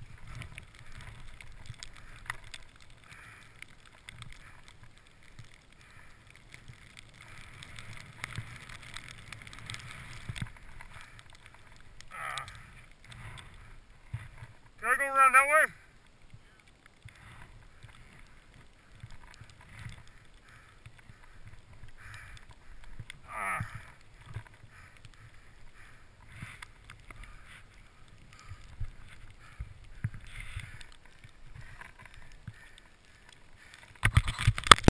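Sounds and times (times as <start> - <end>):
skis swishing through snow: 5.9 - 11.8.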